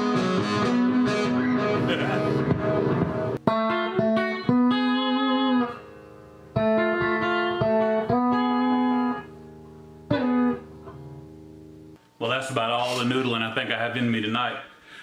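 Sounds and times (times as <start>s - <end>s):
electric guitar sustained notes: 0.0s - 11.8s.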